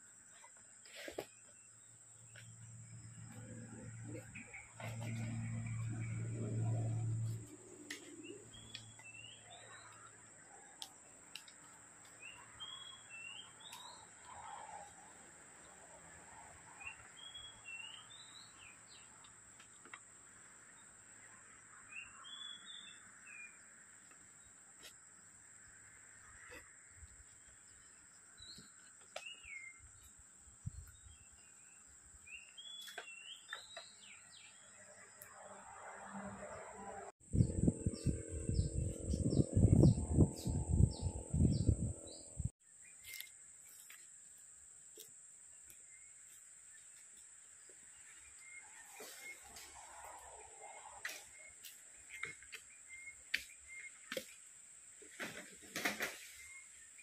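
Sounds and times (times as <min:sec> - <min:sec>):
low hum: 0:36.4 - 0:42.5
high-pitched hum: 0:37.2 - 0:42.5.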